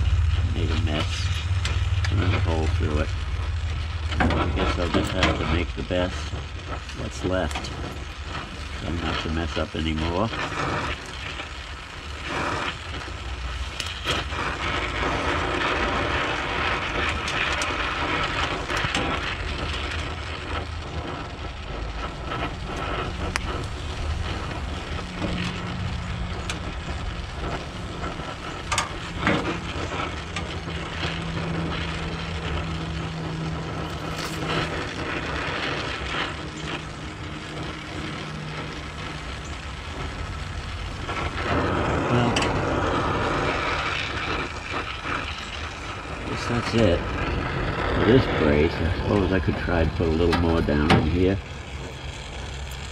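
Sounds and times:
low hum: 0.0s - 52.9s
welding arc crackling hiss: 0.0s - 52.9s.

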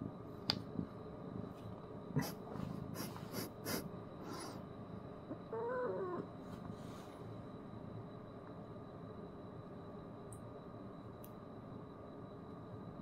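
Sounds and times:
nasal snorts and sniffs: 2.2s - 4.6s.

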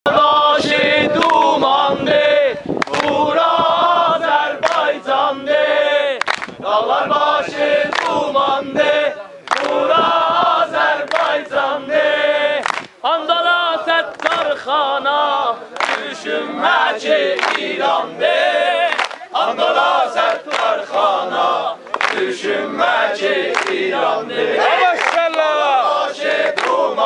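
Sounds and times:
group of people singing: 0.1s - 27.0s
handclaps: 1.2s - 1.5s, 2.8s - 3.2s, 4.6s - 4.9s, 6.2s - 6.6s, 7.9s - 8.2s, 9.4s - 9.8s, 11.0s - 11.4s, 12.6s - 13.0s, 14.1s - 14.6s, 15.8s - 16.2s, 17.3s - 17.7s, 18.9s - 19.3s, 20.2s - 21.1s, 21.8s - 22.3s, 23.5s - 23.8s, 24.9s - 25.6s, 26.4s - 26.9s.

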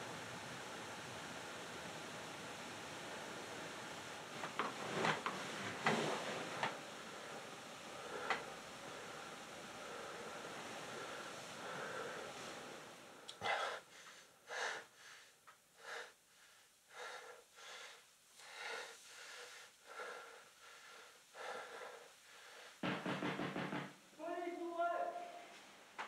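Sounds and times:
faint hiss: 0.0s - 26.0s
man breathing hard: 7.9s - 22.8s.

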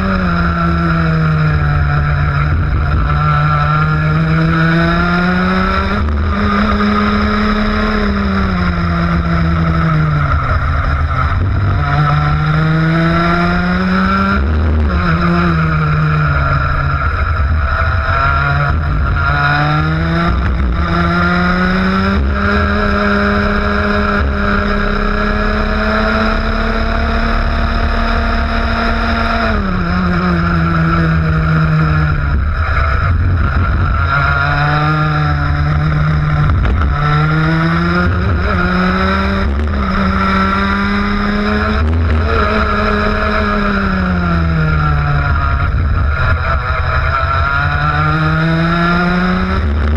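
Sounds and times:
kart engine revving: 0.0s - 49.9s.

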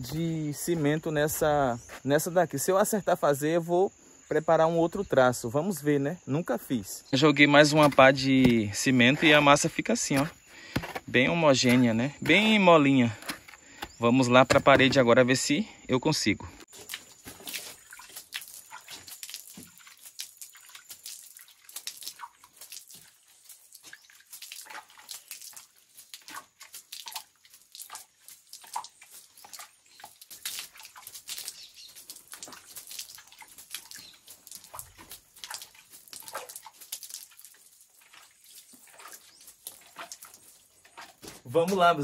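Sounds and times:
wet slurry splatting on bricks: 16.7s - 42.0s.

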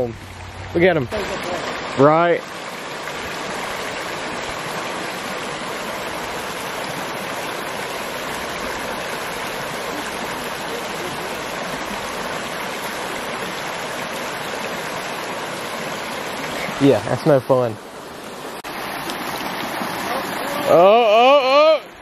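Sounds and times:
creek water flowing over stones: 0.0s - 22.0s.

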